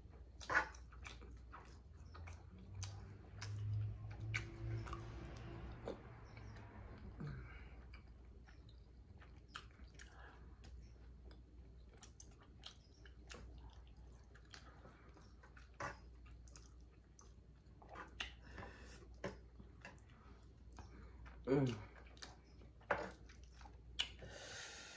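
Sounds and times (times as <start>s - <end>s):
person chewing: 0.1s - 24.2s.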